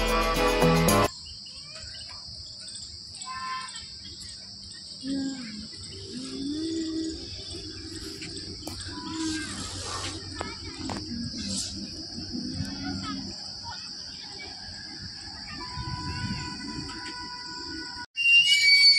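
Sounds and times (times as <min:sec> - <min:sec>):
background music: 0:00.0 - 0:01.1
insect chorus: 0:00.0 - 0:18.9
faint voices: 0:04.9 - 0:17.8.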